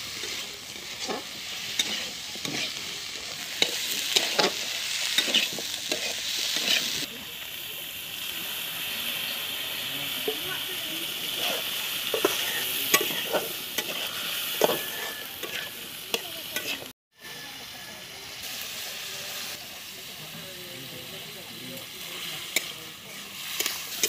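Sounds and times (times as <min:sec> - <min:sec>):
ladle stirring and scraping: 0:00.0 - 0:07.1, 0:11.3 - 0:15.8
food sizzling in a pan: 0:00.0 - 0:24.0.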